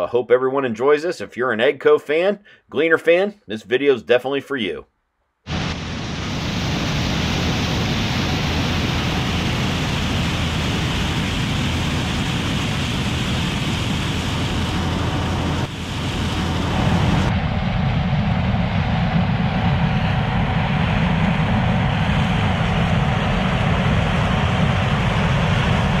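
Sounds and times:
combine harvester running: 5.5s - 26.0s.

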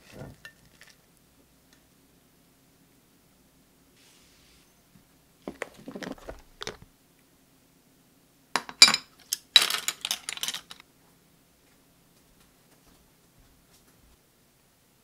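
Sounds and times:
tableware clinking: 8.6s - 10.8s.

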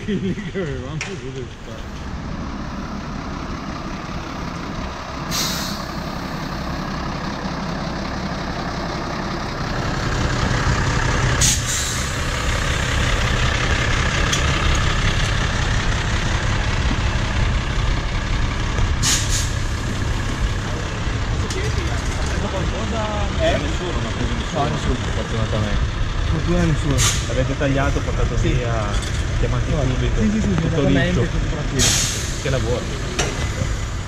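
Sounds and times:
diesel engine idling: 0.0s - 34.0s
compressed air hisses: 5.3s - 6.4s, 11.4s - 12.3s.

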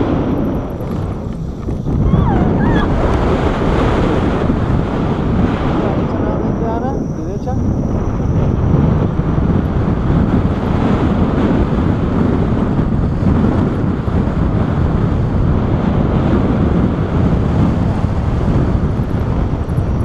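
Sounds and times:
wind rumbling on microphone: 0.0s - 20.0s.

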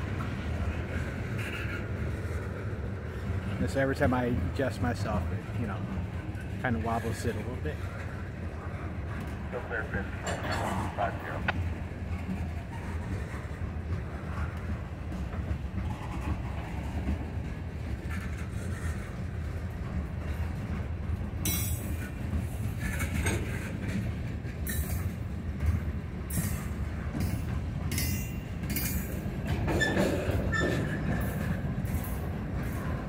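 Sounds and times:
train wheels rumbling: 0.0s - 33.0s
wheel squeal: 29.7s - 31.2s.

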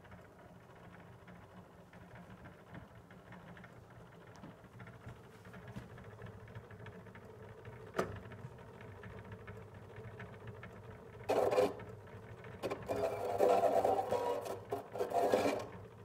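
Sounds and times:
phonograph reproducer click: 12.6s - 15.7s.

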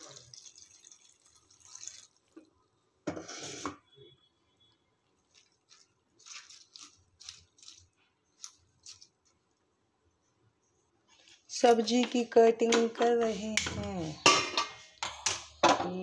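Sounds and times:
water pouring onto leaves: 0.0s - 2.4s, 5.3s - 9.1s
hand rubbing wet leaves: 5.2s - 9.6s.

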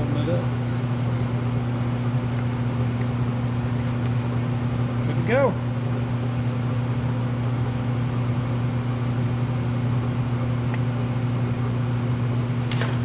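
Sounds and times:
low machine hum with hiss: 0.0s - 13.0s.

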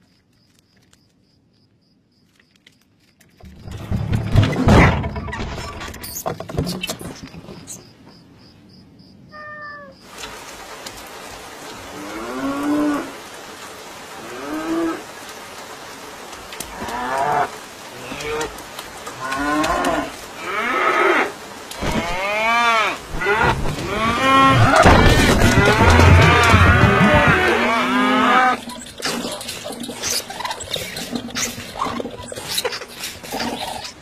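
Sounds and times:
rain hiss: 9.6s - 34.0s
cows mooing: 19.1s - 28.7s.

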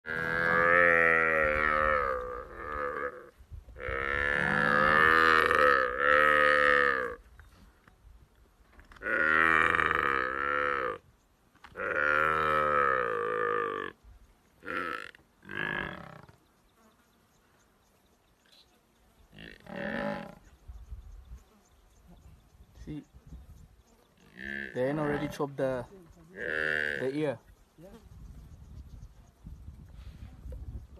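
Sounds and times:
buffalo calf bawling: 0.1s - 7.2s, 8.9s - 11.0s, 11.7s - 14.0s, 14.6s - 16.4s.

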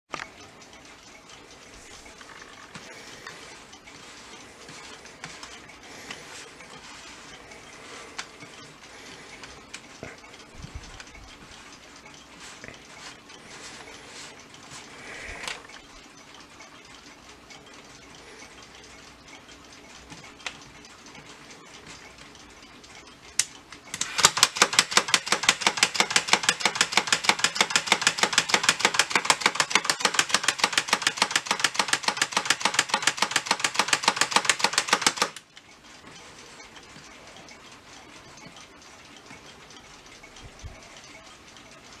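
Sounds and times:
handling of clock: 0.1s - 15.9s, 23.3s - 42.0s
alarm clock ringing rapidly: 0.2s - 42.0s.

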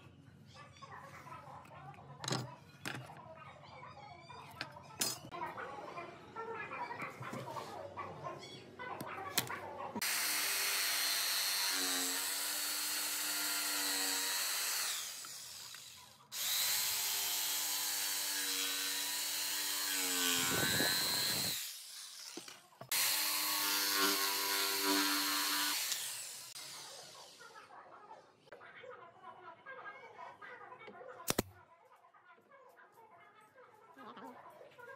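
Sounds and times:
jigsaw cutting wood: 10.0s - 27.5s.

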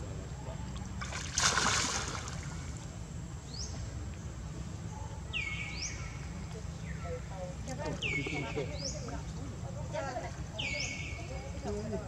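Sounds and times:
monkey splashing in water: 1.0s - 2.7s.

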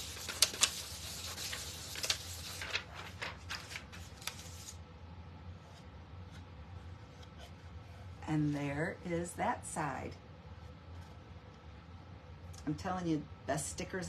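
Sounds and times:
plastic crinkles: 0.0s - 4.8s
plastic sheet rustling and scratching: 0.0s - 4.8s
faint handling noise: 1.9s - 4.8s.

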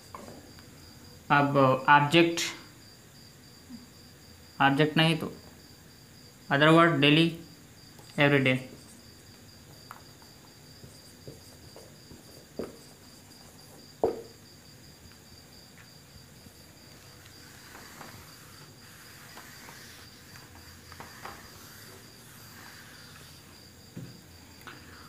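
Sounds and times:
cricket chirping: 2.4s - 25.0s
duster wiping a whiteboard: 16.4s - 25.0s.

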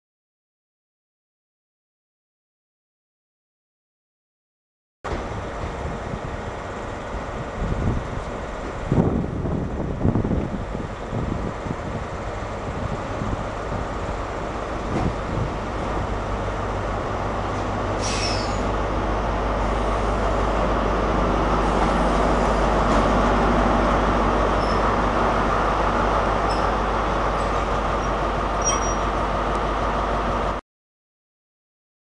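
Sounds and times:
train diesel engine running: 5.1s - 30.6s
faint high squeaks: 18.0s - 18.7s, 28.0s - 29.1s
high squeal: 18.0s - 18.8s, 24.6s - 25.0s, 26.4s - 26.8s, 28.0s - 29.2s.

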